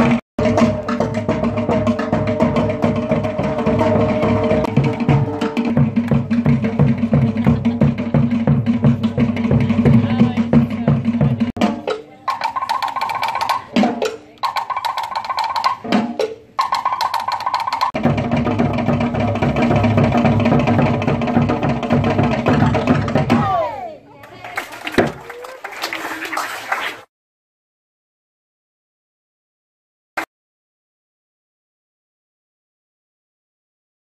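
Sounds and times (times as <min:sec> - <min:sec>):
fast slit drum and drum beat: 0:00.0 - 0:23.5.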